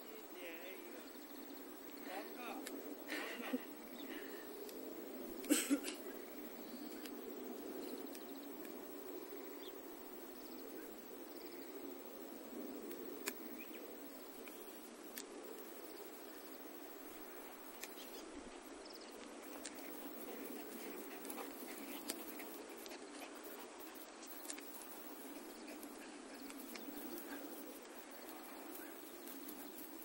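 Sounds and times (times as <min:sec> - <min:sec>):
steady low hiss: 0:00.0 - 0:30.0
dogs panting: 0:19.4 - 0:30.0.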